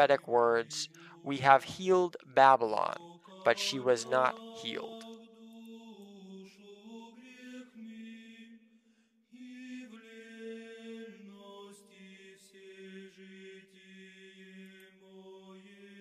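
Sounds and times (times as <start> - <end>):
melodic vocal chant: 0.0 - 8.4.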